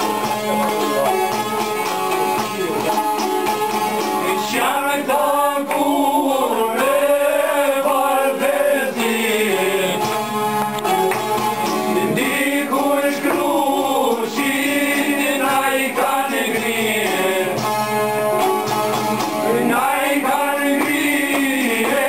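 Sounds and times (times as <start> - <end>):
plucked lutes: 0.0 - 6.2, 8.9 - 22.0
men singing in unison: 4.1 - 11.1, 11.9 - 17.8, 19.4 - 22.0.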